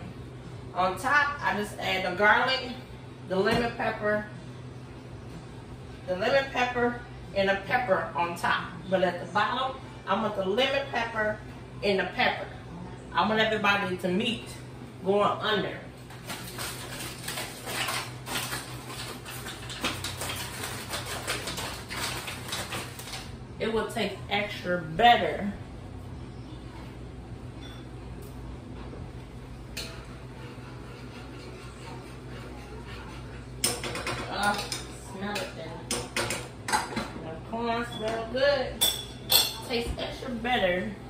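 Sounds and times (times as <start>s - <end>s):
steady low hum: 0.0s - 41.0s
aluminium foil crinkling: 16.1s - 23.4s
dishes and utensils clinking: 27.6s - 28.0s, 38.8s - 40.0s.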